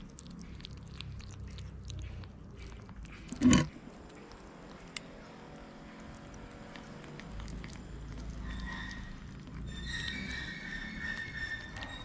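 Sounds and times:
kittens chewing and lapping: 0.0 - 12.0.

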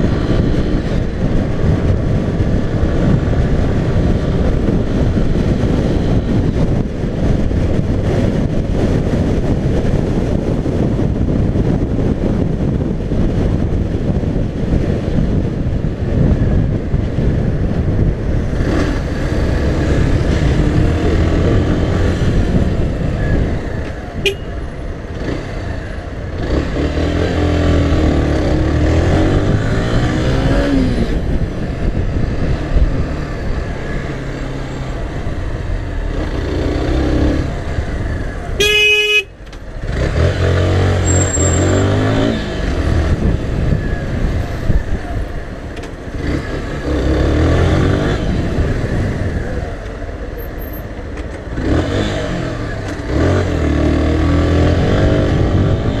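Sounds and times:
short horn beep: 24.2 - 24.6, 38.6 - 39.3.

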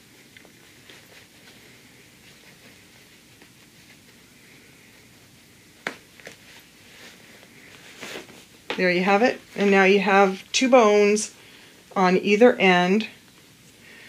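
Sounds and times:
fabric rustling: 0.0 - 12.2.

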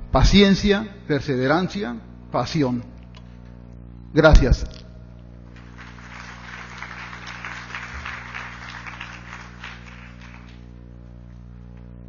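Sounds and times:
low electrical hum: 0.0 - 12.0
audience applauding: 5.5 - 10.8.

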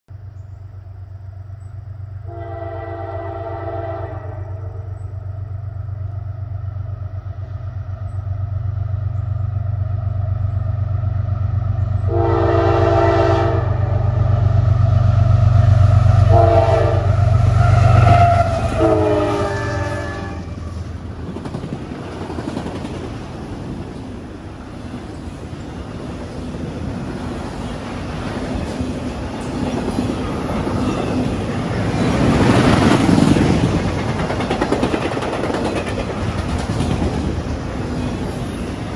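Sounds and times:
locomotive engine rumble: 0.1 - 38.9
locomotive horn blasts: 2.2 - 4.9, 12.1 - 14.2, 16.2 - 20.8
rush and clatter of train cars: 9.0 - 38.9.

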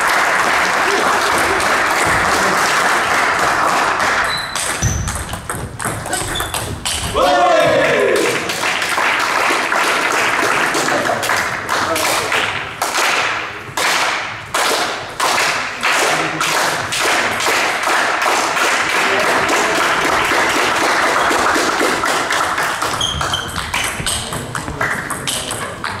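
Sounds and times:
echoing taps and knocks: 4.5 - 7.8, 22.7 - 26.0.

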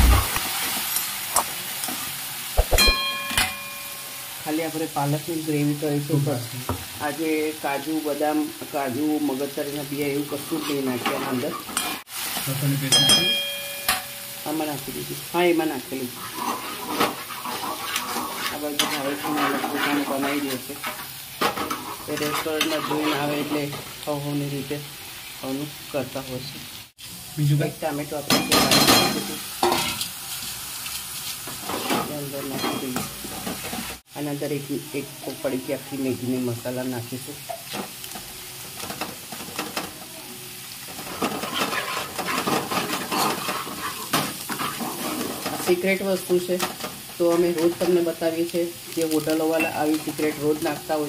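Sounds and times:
onion frying in oil sizzling: 0.0 - 51.0
spoon stirring and scraping pan: 10.1 - 13.3, 16.0 - 24.0, 28.3 - 34.0, 37.4 - 48.1.

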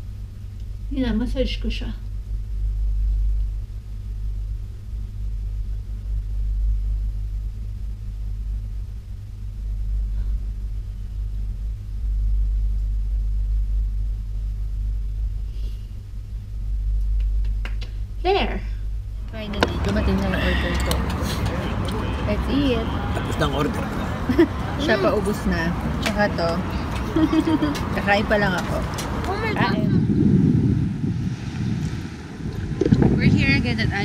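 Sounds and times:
faint hum: 0.0 - 34.0
low rumble: 0.0 - 34.0.

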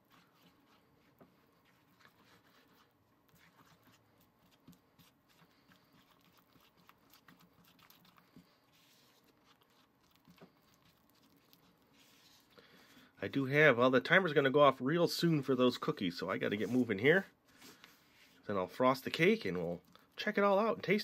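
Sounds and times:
spatula scraping frosting in bowl: 0.0 - 12.5.

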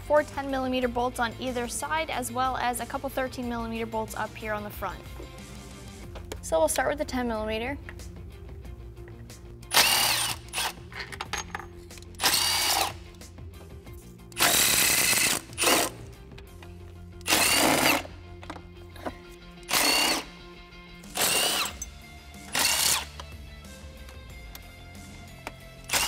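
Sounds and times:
background music: 0.0 - 26.0
power tool whirring: 9.7 - 10.8, 12.1 - 13.0, 14.3 - 16.0, 17.2 - 18.1, 19.6 - 20.3, 21.1 - 23.3.

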